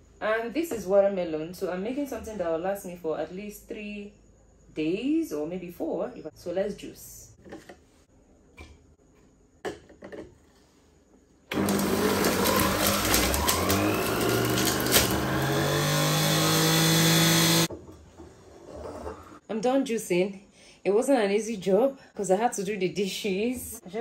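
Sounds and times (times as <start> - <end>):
juicer motor running: 11.5 - 17.7.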